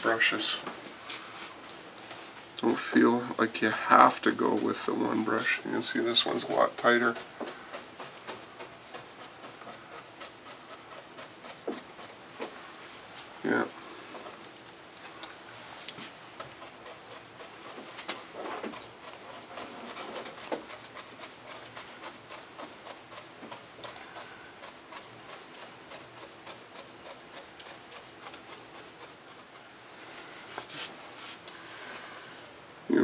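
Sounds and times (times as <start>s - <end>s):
paintbrush dabbing on board: 1.4s - 12.6s, 15.9s - 29.6s.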